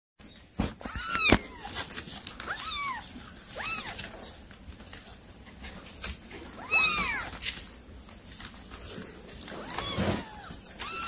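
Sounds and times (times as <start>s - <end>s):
cats meowing: 0.8s - 4.4s, 6.4s - 7.6s, 9.4s - 11.0s.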